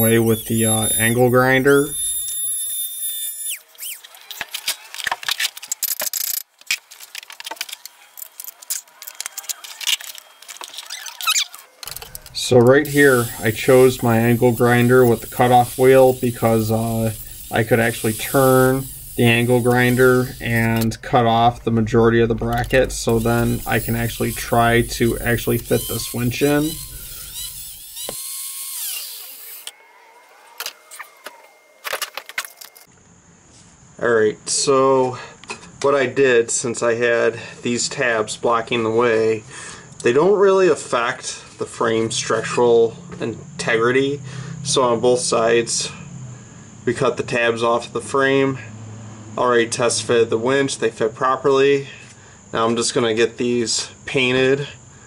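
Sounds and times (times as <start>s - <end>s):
angle grinder winding down: 0.0s - 4.4s, 11.8s - 32.9s
rotary tool whine spinning down: 0.0s - 5.0s, 7.9s - 32.9s.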